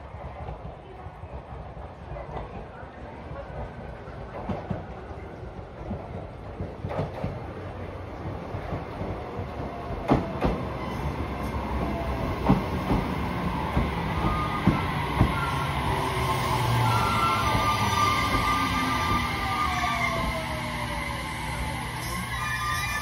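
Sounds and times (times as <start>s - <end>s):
electric train passing: 6.3s - 23.0s
train whine: 7.7s - 23.0s.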